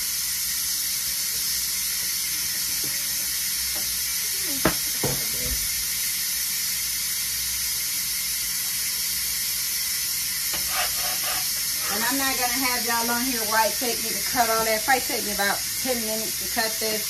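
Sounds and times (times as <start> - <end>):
pressure cooker venting steam: 0.0 - 17.0
knock: 4.6 - 5.6.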